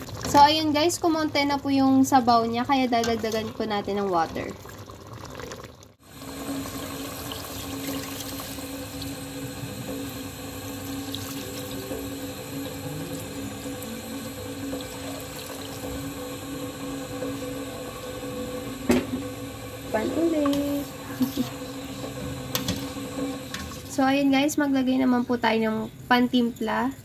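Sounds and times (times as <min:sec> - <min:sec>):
water pouring into a pot: 0:03.0 - 0:24.0.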